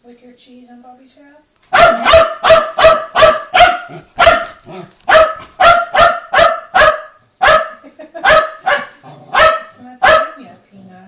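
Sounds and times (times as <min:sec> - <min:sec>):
dog barking high-pitched: 0:01.7 - 0:10.4.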